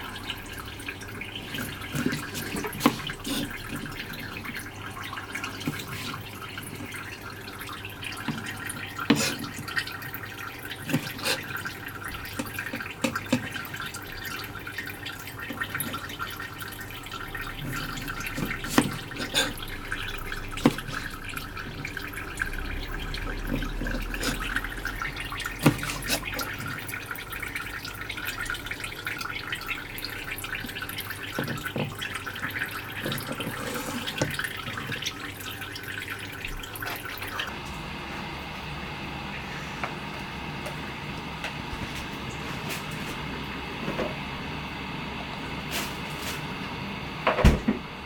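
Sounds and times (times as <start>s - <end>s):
running water: 0.0s - 37.7s.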